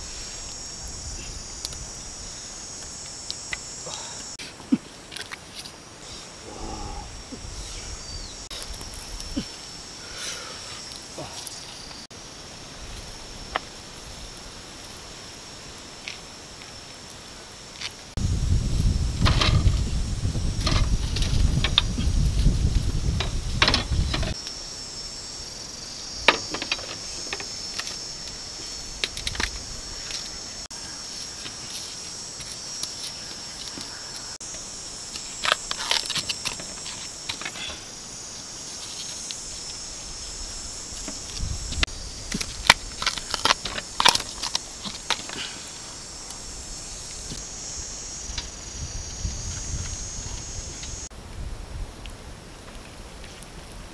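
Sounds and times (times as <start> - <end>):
high-pitched insect buzz: 0.0 - 51.1
husks being peeled: 35.1 - 37.8, 40.9 - 46.4.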